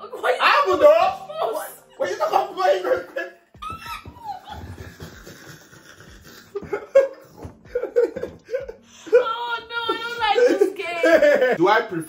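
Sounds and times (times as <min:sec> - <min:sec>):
people laughing: 0:01.6 - 0:08.8, 0:10.0 - 0:11.6.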